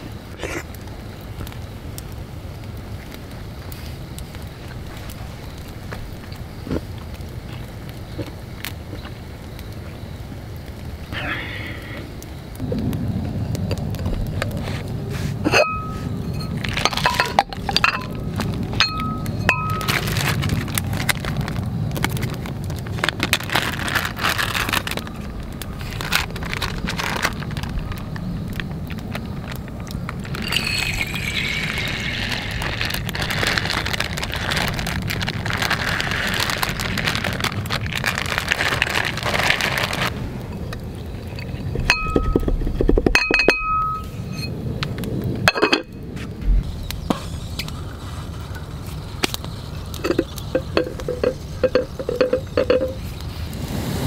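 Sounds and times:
ceramic pot and lid clinking: 0:15.5 - 0:18.2, 0:18.8 - 0:19.9, 0:41.9 - 0:44.5, 0:45.5 - 0:45.9, 0:50.0 - 0:53.0
rice and water pouring: 0:15.5 - 0:25.1, 0:30.1 - 0:40.2, 0:49.9 - 0:54.0.

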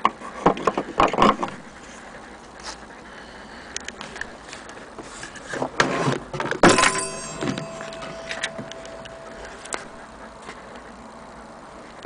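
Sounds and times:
clock gong ringing: 0:06.6 - 0:11.5.

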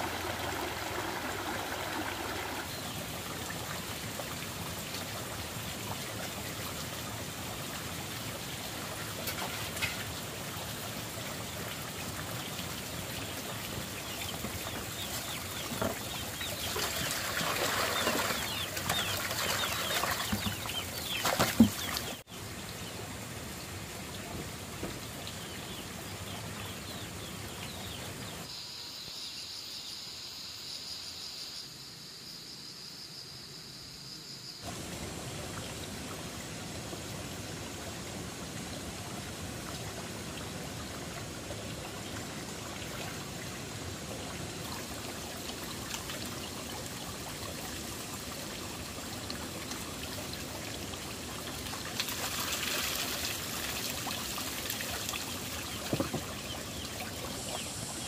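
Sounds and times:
water trickling and pouring: 0:00.0 - 0:22.3, 0:34.7 - 0:58.0.

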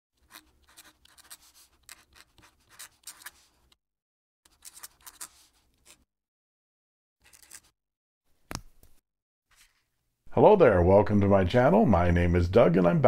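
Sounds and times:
pen nib scratching paper: 0:00.2 - 0:03.7, 0:04.5 - 0:06.1.

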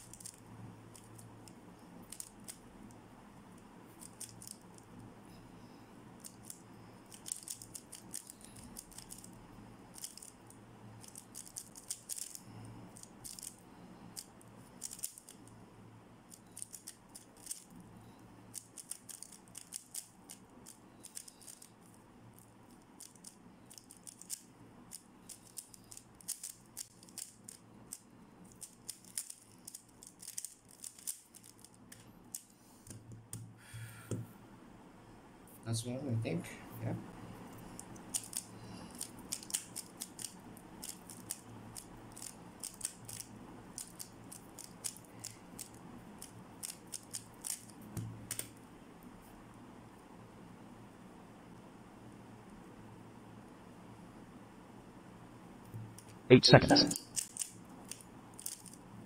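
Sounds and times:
puzzle cube plastic clicks: 0:11.0 - 0:12.4, 0:14.2 - 0:15.5, 0:16.3 - 0:17.7, 0:18.5 - 0:33.4, 0:37.8 - 0:48.5, 0:56.9 - 0:58.8.

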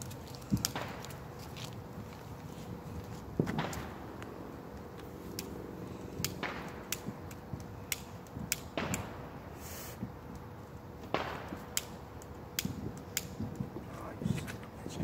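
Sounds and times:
fireworks cracks and pops: 0:00.0 - 0:05.6, 0:06.2 - 0:15.0
echoing firework bangs: 0:00.5 - 0:01.0, 0:03.4 - 0:04.2, 0:06.2 - 0:07.3, 0:08.4 - 0:09.5, 0:11.0 - 0:11.8.

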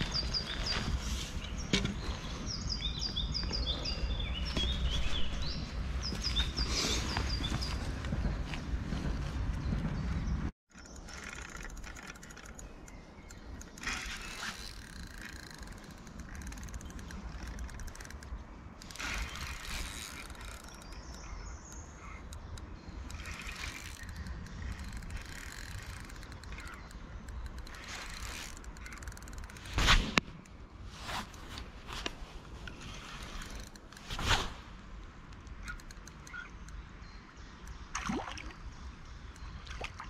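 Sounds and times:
fishing reel clicking and whirring: 0:10.7 - 0:21.2, 0:23.0 - 0:29.7.

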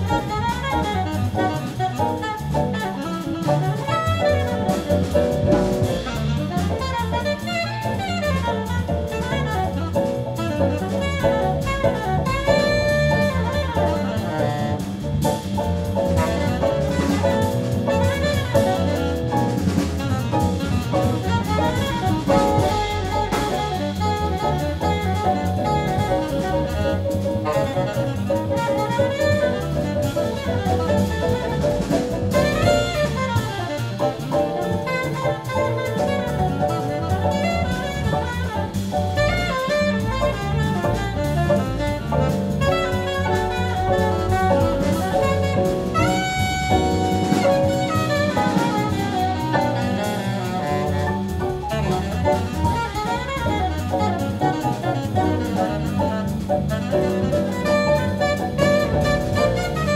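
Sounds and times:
double bass: 0:00.0 - 0:59.9
drum kit: 0:00.0 - 0:59.9
piano: 0:00.0 - 0:59.9
saxophone: 0:00.0 - 0:59.9.

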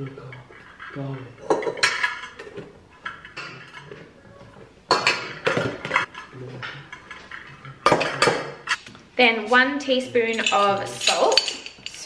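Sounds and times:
utensils clinking against mixing bowl: 0:10.2 - 0:12.0.

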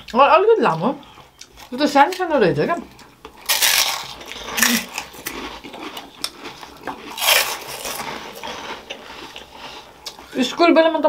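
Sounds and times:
crisps being crunched: 0:03.3 - 0:10.3.

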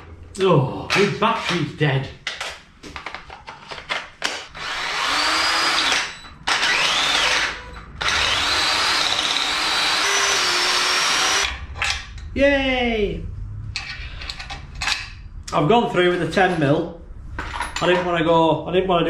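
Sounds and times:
cordless drill whining: 0:04.6 - 0:11.5.

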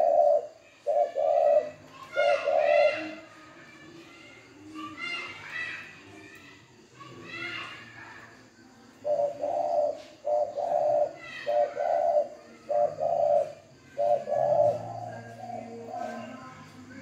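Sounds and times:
dove cooing: 0:00.0 - 0:03.3, 0:08.9 - 0:17.0.

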